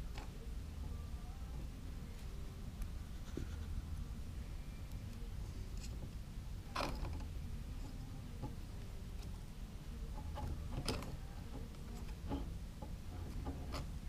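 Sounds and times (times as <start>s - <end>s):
low steady hum: 0.0s - 14.0s
small metal clicks and scrapes: 5.7s - 6.1s, 10.1s - 14.0s.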